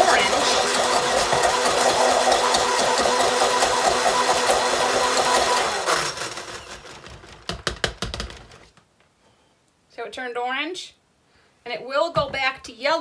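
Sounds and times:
stick blender running: 0.0 - 7.5.

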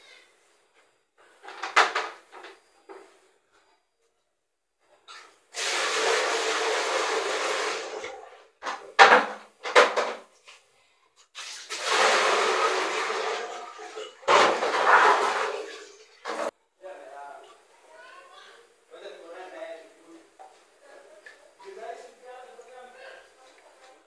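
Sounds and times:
water running: 5.1 - 8.6, 11.3 - 16.5.

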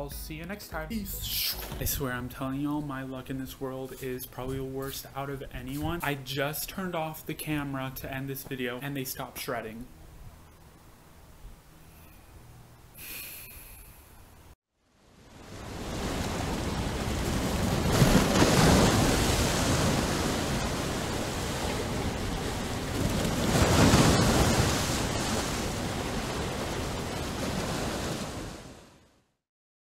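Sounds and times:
ocean waves breaking: 14.9 - 29.1.

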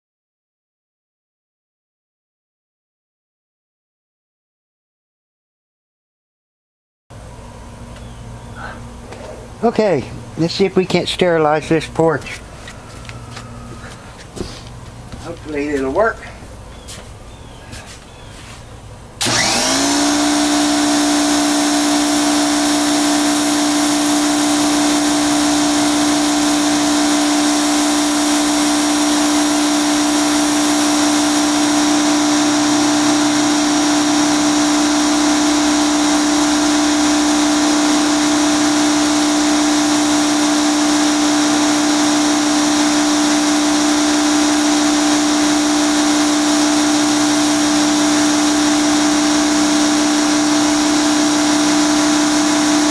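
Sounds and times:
pressure washer humming: 7.2 - 52.9
water jet hissing on wood deck: 21.0 - 52.5.

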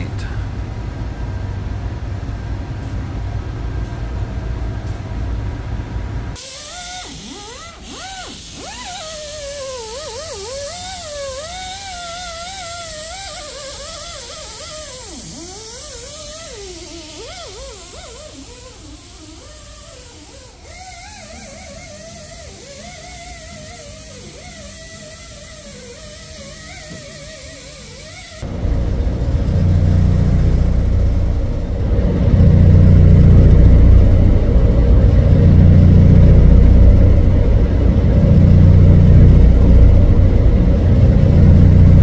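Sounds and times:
steady hiss: 6.4 - 31.8
electric guitar with pitch bends: 28.4 - 42.0
low machine rumble: 28.4 - 42.0.

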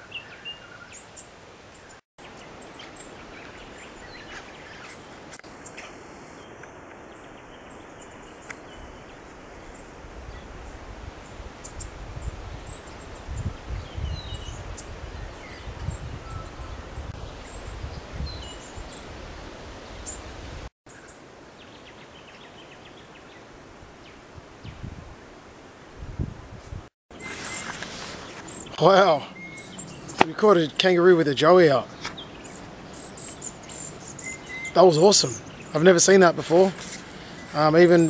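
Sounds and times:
high bird chirps: 27.1 - 38.0.

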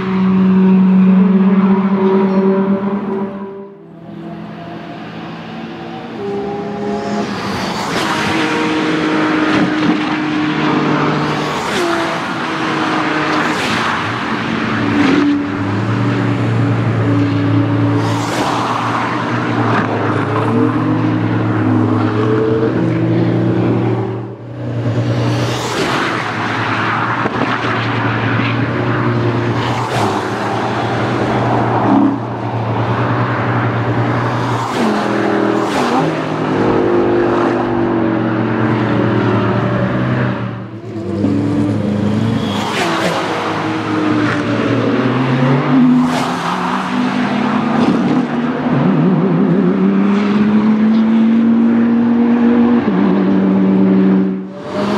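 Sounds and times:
race cars accelerating past: 0.0 - 54.9.

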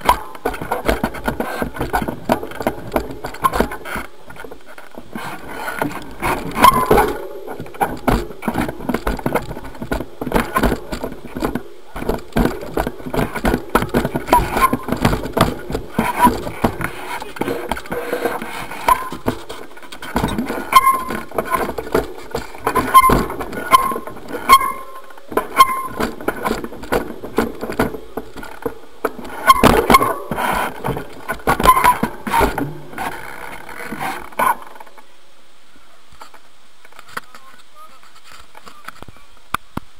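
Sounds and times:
bike rattling and knocking: 0.0 - 34.9
short high squeaks: 5.2 - 7.9, 14.2 - 15.2, 16.0 - 19.6, 20.2 - 21.8, 22.6 - 26.2, 29.4 - 30.8, 31.5 - 34.8.

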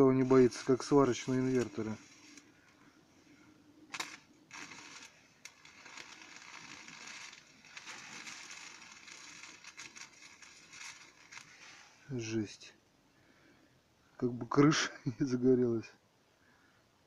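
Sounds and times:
welding arc crackling and popping: 0.2 - 2.5, 3.9 - 11.8.

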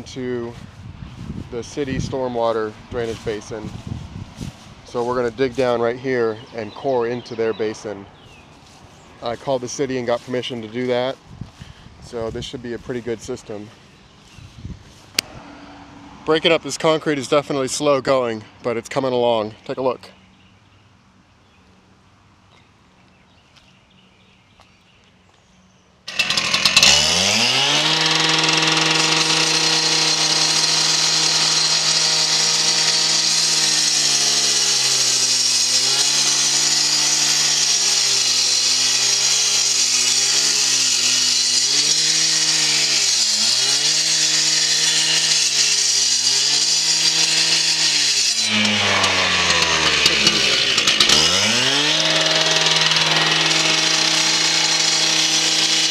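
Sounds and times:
gas cut-off saw cutting concrete: 26.1 - 55.9.

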